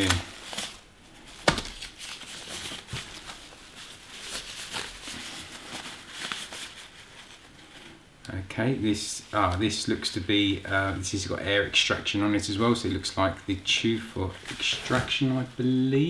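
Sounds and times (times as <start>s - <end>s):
packing sheet rustling: 0.0s - 8.0s, 14.0s - 15.6s.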